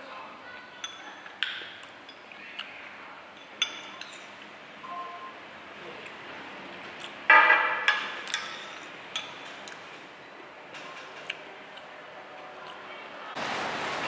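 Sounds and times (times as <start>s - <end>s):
dishes and utensils clinking: 0.8s - 2.4s, 3.3s - 4.5s, 7.3s - 10.0s.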